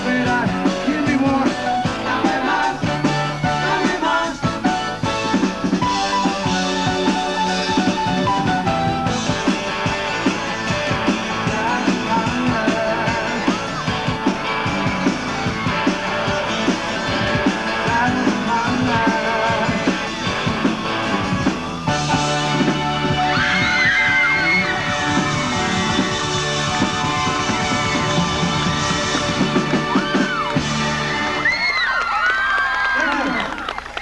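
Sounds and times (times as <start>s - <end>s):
person singing: 0.0s - 4.8s, 11.3s - 14.0s, 17.4s - 20.2s
electric guitar: 0.0s - 31.8s
drums: 0.0s - 34.0s.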